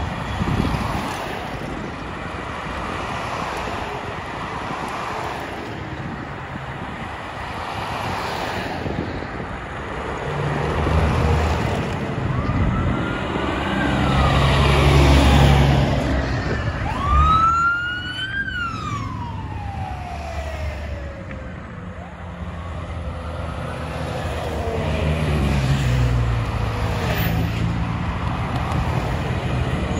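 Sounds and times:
diesel trucks rolling past: 8.8s - 29.9s
siren wailing: 12.0s - 25.2s.

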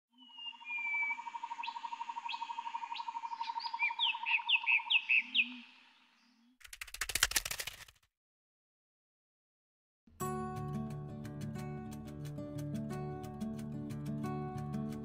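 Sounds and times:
bird whistles and chirps: 0.2s - 2.4s, 3.4s - 5.6s
loud rapid clattering burst: 6.6s - 8.0s.

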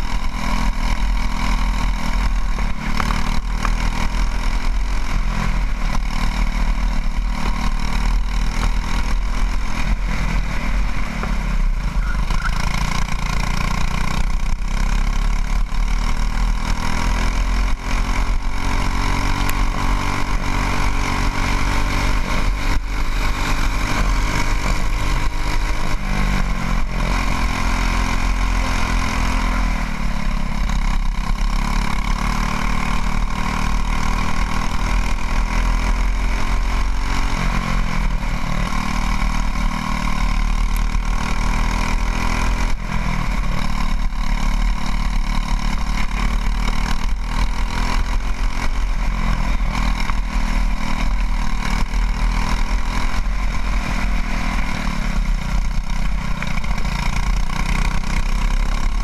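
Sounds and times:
go-kart engine revving: 0.0s - 59.0s.

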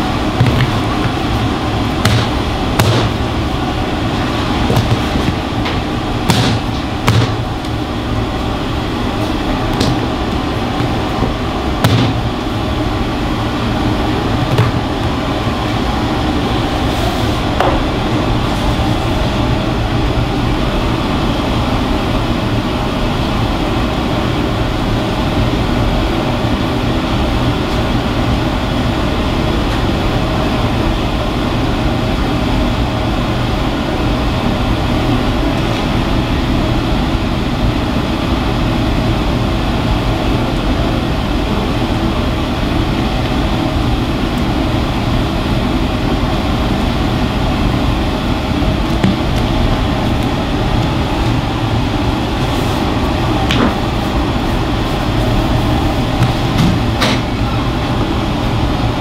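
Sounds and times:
kitchen ventilation whir: 0.0s - 59.0s
dough slapped on wooden board: 2.1s - 3.2s, 6.3s - 7.4s, 9.8s - 10.2s, 10.8s - 12.2s.

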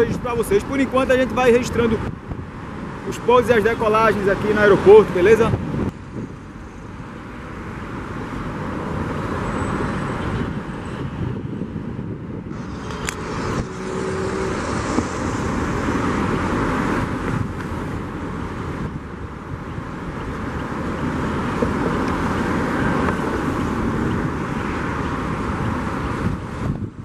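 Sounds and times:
road traffic passing: 0.0s - 27.0s
jet aircraft taxiing: 10.4s - 19.1s.

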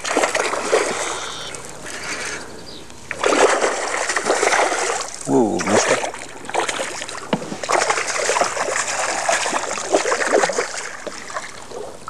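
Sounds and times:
fish thrashing and splashing in water: 0.0s - 1.3s, 3.1s - 12.0s.

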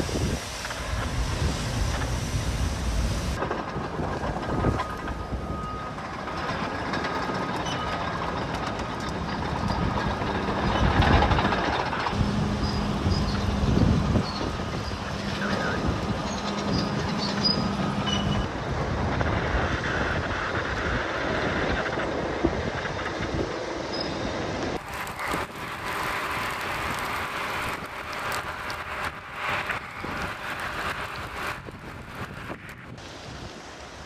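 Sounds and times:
fire crackling: 0.0s - 5.5s, 24.8s - 34.0s
bulldozer engine humming: 0.0s - 21.6s, 23.6s - 32.9s
wildfire rushing and rumbling: 0.0s - 34.0s.

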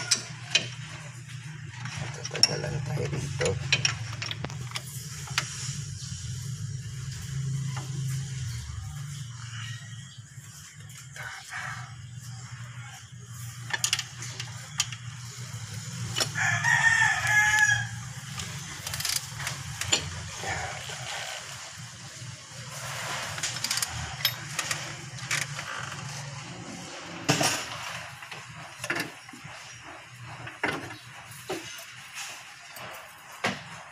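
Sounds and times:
rooster crowing: 0.0s - 0.4s, 16.2s - 18.4s.

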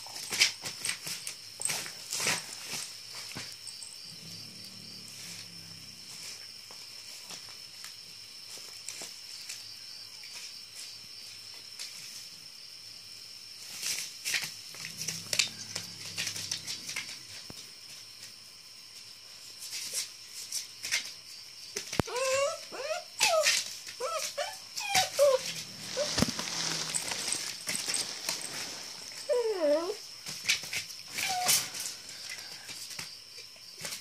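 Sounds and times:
puppy whining and yelping: 22.0s - 30.0s, 31.1s - 31.7s
scuffling on plastic tarp: 23.2s - 31.5s.

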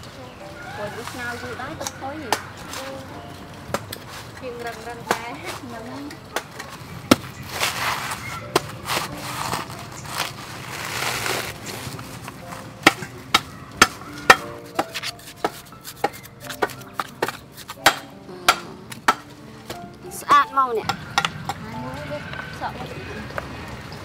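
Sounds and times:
knife chopping coconut husk: 6.3s - 12.0s, 12.8s - 19.8s.

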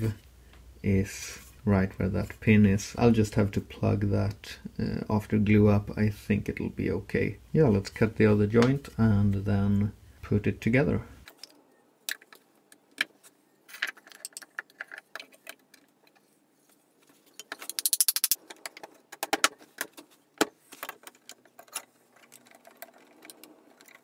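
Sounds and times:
wooden parts knocking and clicking: 11.3s - 16.2s, 17.2s - 24.0s.

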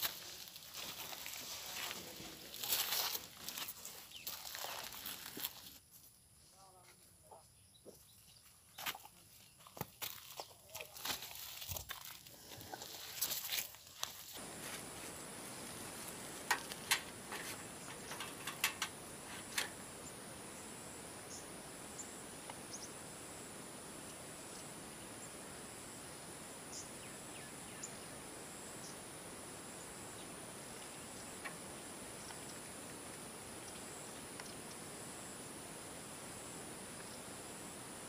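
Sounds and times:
rustling: 0.0s - 5.8s
high-pitched insect chorus: 0.0s - 8.0s, 8.7s - 38.0s.

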